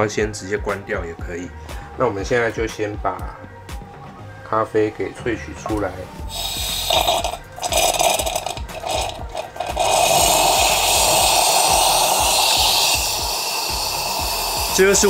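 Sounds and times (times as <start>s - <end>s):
espresso pot sputtering and hissing: 6.2s - 15.0s.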